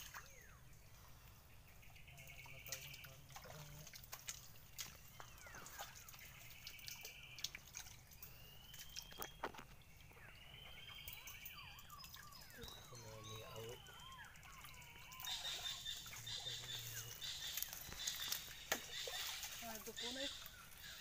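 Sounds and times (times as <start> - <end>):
water dripping and plinking: 2.2 - 20.9.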